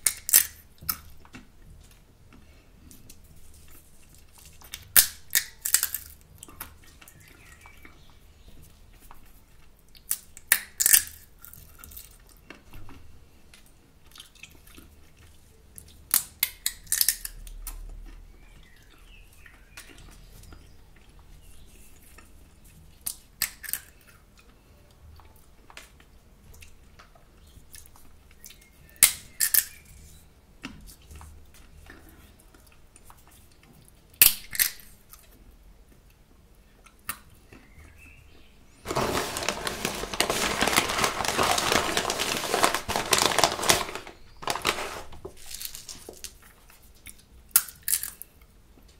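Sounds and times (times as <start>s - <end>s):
sunflower seeds cracking: 0.0s - 1.1s, 4.1s - 6.2s, 10.0s - 12.2s, 16.1s - 17.5s, 38.9s - 46.4s, 47.5s - 48.3s.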